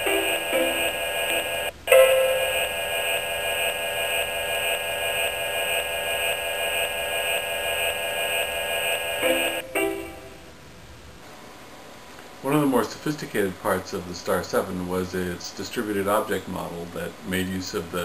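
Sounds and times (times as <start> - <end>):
short stepped electronic notes: 0.0 - 2.8
synthesized electronic chord: 0.0 - 3.7, 9.2 - 10.6.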